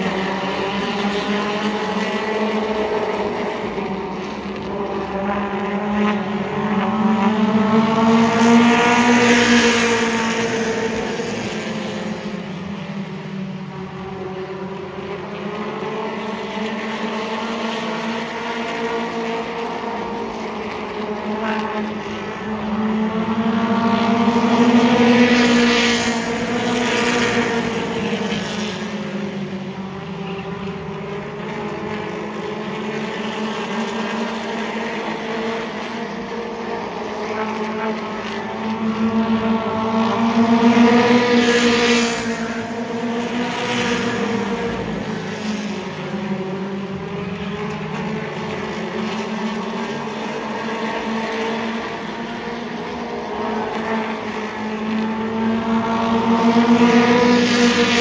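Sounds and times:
race car engines droning: 0.0s - 58.0s.

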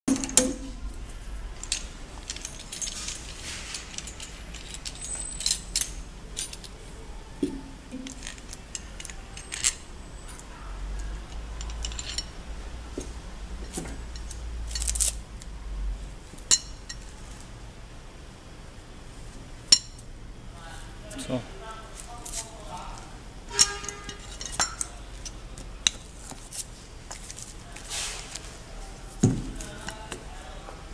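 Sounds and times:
metallic clicks and clinks: 1.6s - 6.8s, 7.9s - 12.4s.

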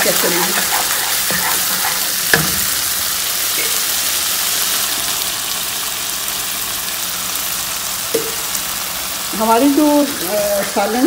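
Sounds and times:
wooden spoon stirring: 0.0s - 2.7s
paste sizzling in a pan: 0.0s - 11.0s
spoon knocking against pan: 0.7s - 2.8s.

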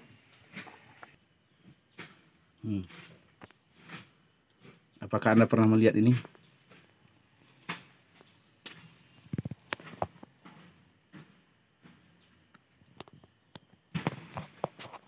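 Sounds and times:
faint high insect chirring: 0.0s - 15.0s
footsteps: 7.6s - 12.1s.

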